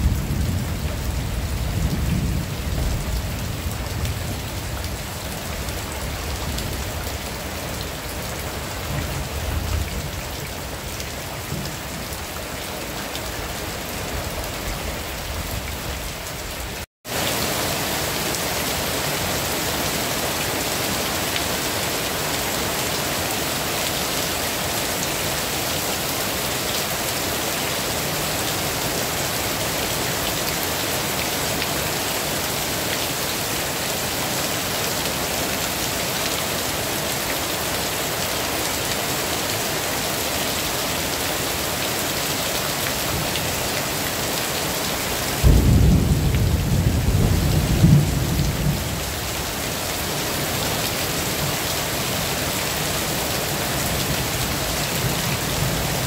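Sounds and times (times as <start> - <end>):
low rumble of thunder: 0.0 - 5.2, 45.4 - 49.2
heavy rain falling: 0.0 - 56.0.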